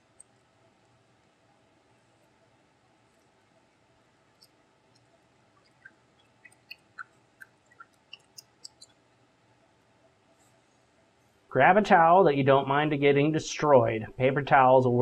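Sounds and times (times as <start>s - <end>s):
wet squelches of kneading glue: 3.1s - 9.1s.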